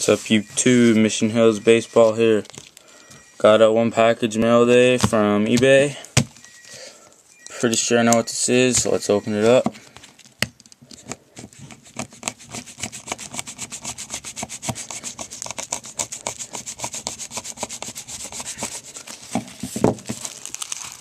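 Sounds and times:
scraping strokes on package: 0:11.2 - 0:19.4.

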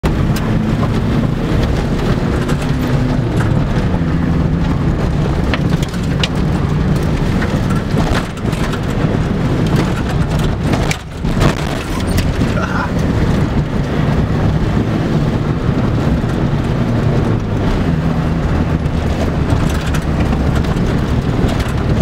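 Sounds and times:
diesel engine from inside cabin: 0:00.0 - 0:22.0
tyres rumbling over gravel: 0:00.2 - 0:14.2
stones ticking and knocking: 0:01.6 - 0:13.2, 0:18.7 - 0:22.0.

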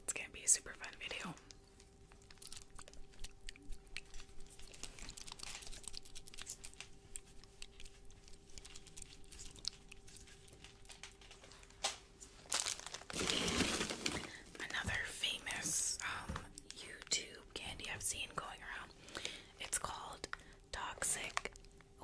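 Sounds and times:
faint steady hum: 0:00.0 - 0:22.0
plastic wrapper crinkling: 0:00.8 - 0:17.2, 0:21.0 - 0:21.8.

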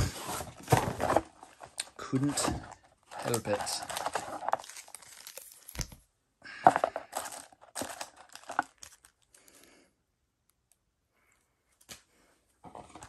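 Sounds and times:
plastic packaging crinkling and tearing: 0:01.8 - 0:06.0, 0:07.1 - 0:09.4.

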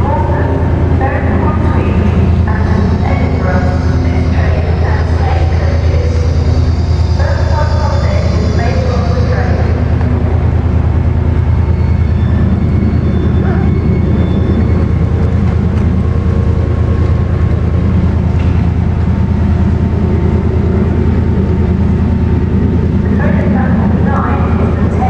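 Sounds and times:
diesel train engine running: 0:00.0 - 0:25.0.

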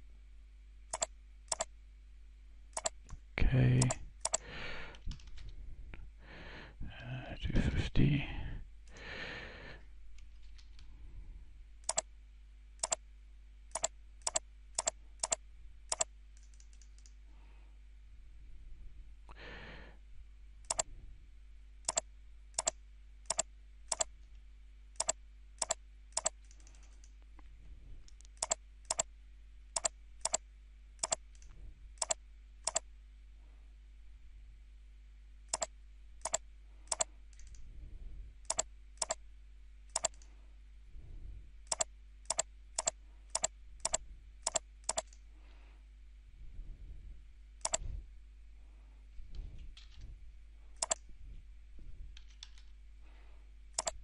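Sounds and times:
faint steady hum: 0:00.0 - 0:54.0
computer mouse clicks: 0:00.9 - 0:01.7, 0:02.7 - 0:03.2, 0:03.8 - 0:05.5, 0:11.8 - 0:12.1, 0:12.8 - 0:13.0, 0:13.7 - 0:17.2, 0:20.6 - 0:20.9, 0:21.9 - 0:24.4, 0:25.0 - 0:27.3, 0:28.0 - 0:29.1, 0:29.8 - 0:30.4, 0:31.0 - 0:32.9, 0:35.5 - 0:37.7, 0:38.4 - 0:39.2, 0:39.9 - 0:40.3, 0:41.7 - 0:45.2, 0:47.6 - 0:47.9, 0:50.8 - 0:51.0, 0:52.2 - 0:52.7, 0:53.8 - 0:54.0
person breathing: 0:04.3 - 0:07.1, 0:08.2 - 0:10.0, 0:17.2 - 0:17.8, 0:19.3 - 0:20.1, 0:45.2 - 0:47.2, 0:47.8 - 0:49.7, 0:52.9 - 0:53.6.

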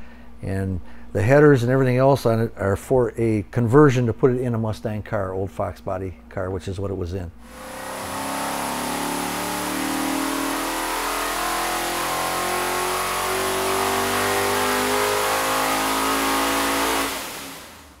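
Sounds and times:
engine running on dynamometer: 0:07.4 - 0:18.0.

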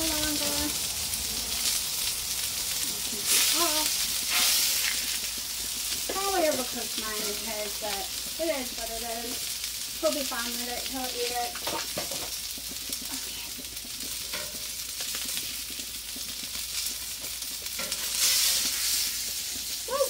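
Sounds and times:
food sizzling on a griddle: 0:00.0 - 0:20.0
metal spatula scraping and tapping: 0:14.0 - 0:15.4, 0:17.6 - 0:18.7.

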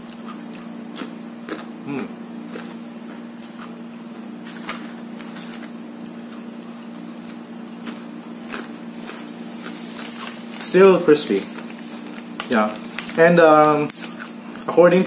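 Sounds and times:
person chewing crunchy chips: 0:00.0 - 0:14.8
steady low hum: 0:00.0 - 0:15.0
foil snack packet crinkling: 0:08.5 - 0:14.8.

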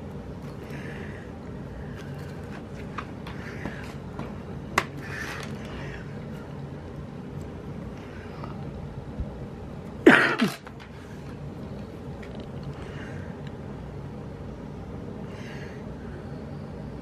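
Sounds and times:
person coughing or sneezing: 0:10.0 - 0:10.7.

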